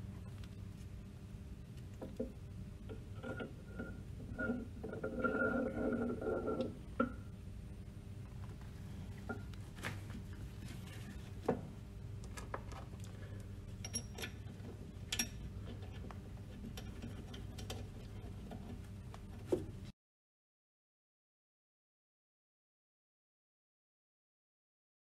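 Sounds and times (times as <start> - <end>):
steady low hum: 0.0 - 19.9
metal parts clicking and clinking: 13.8 - 16.1.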